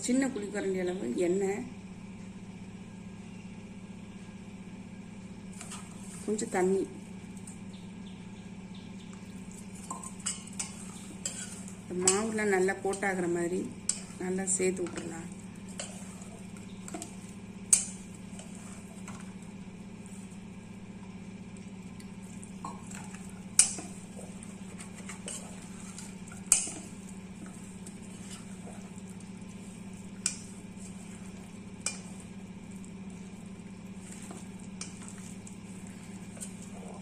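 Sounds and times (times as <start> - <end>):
steady low hum: 0.0 - 37.0
hands squishing and rubbing food: 13.8 - 37.0.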